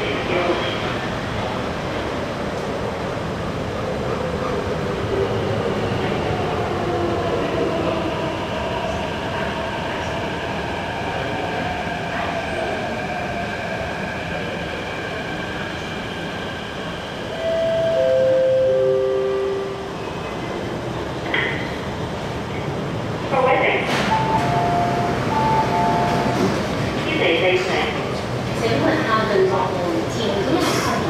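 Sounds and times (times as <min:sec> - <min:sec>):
metro train rumbling in tunnel: 0:00.0 - 0:31.0
loud steady tone: 0:24.1 - 0:26.6.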